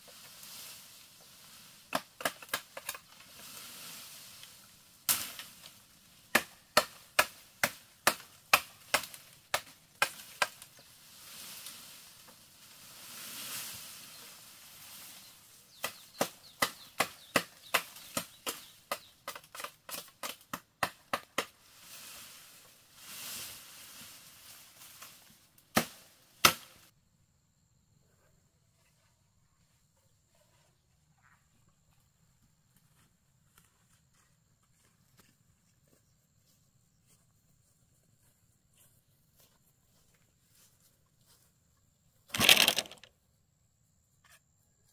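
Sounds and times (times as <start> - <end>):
rustling leaves: 0.0 - 19.2, 21.4 - 26.9, 42.3 - 43.1
blade chopping bamboo: 1.9 - 3.0, 6.3 - 10.7, 15.8 - 21.6, 25.7 - 26.8, 42.3 - 43.0.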